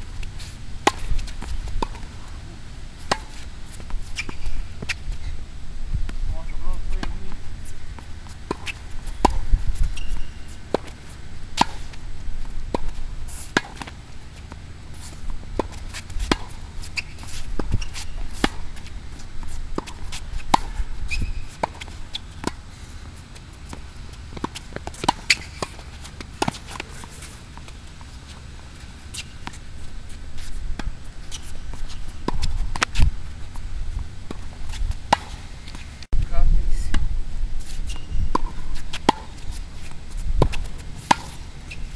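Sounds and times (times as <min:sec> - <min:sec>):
tennis ball hit with racket: 0:00.3 - 0:02.1, 0:03.0 - 0:05.0, 0:08.0 - 0:12.0, 0:12.7 - 0:22.6, 0:23.6 - 0:27.7, 0:34.3 - 0:35.8, 0:38.3 - 0:41.5.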